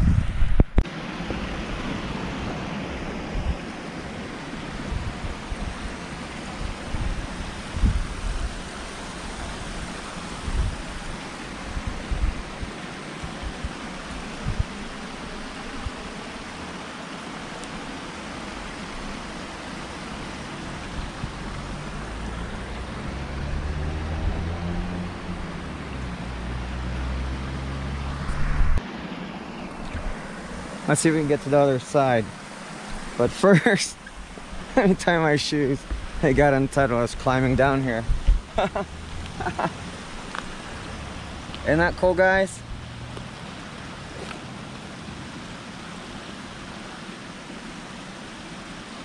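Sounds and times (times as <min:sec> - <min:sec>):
wind and handling thumps on microphone: 0:00.0 - 0:01.4, 0:04.8 - 0:08.6, 0:09.8 - 0:13.8, 0:14.4 - 0:14.8, 0:20.8 - 0:21.4, 0:28.2 - 0:28.8, 0:29.7 - 0:30.2, 0:35.8 - 0:36.4, 0:37.4 - 0:38.6
water rushing down a cascade: 0:00.8 - 0:28.3, 0:29.7 - 0:49.0.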